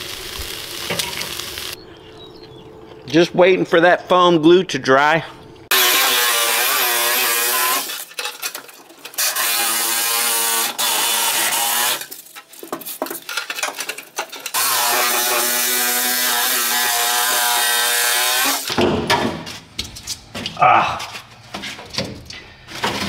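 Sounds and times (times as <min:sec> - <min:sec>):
electric knife buzzing: 0:05.7 - 0:08.0, 0:09.2 - 0:12.1, 0:14.5 - 0:18.7.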